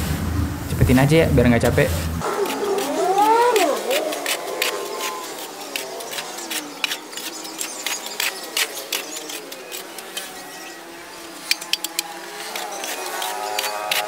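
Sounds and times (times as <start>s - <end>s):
hoe scraping soil: 1.7s - 14.0s.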